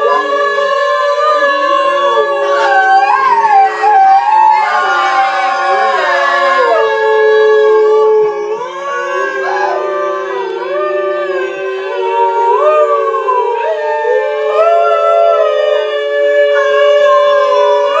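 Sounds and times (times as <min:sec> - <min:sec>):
group of voices singing om tones: 0:00.0 - 0:18.0.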